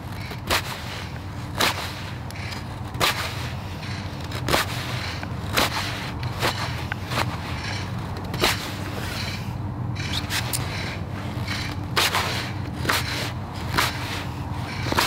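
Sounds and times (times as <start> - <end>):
knife slicing wood: 11.5 - 15.0.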